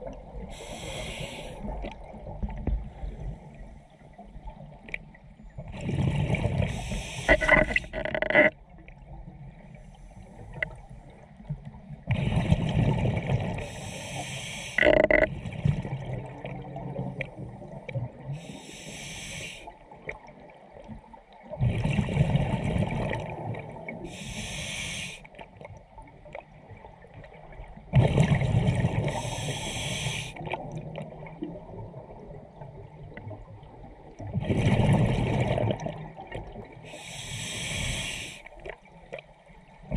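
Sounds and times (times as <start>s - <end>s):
regulator hiss: 0.5s - 1.6s, 6.7s - 7.9s, 13.7s - 14.8s, 18.4s - 19.7s, 24.1s - 25.2s, 29.2s - 30.4s, 36.9s - 38.5s
exhaled bubbles rushing: 27.9s - 29.2s, 34.3s - 36.7s.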